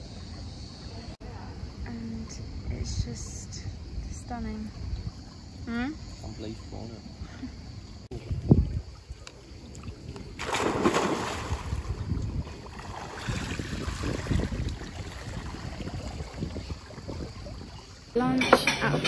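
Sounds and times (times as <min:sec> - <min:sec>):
person splashing into pool: 0:10.2 - 0:16.9
swimming stroke splashes: 0:10.2 - 0:17.1.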